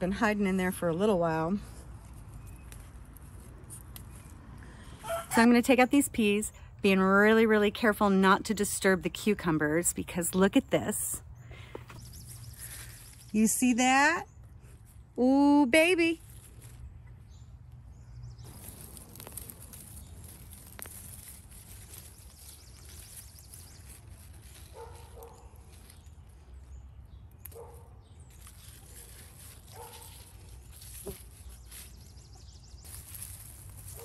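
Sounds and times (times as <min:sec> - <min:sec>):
dry leaves rustling: 0:00.7 - 0:06.4, 0:11.6 - 0:13.8, 0:15.8 - 0:34.0.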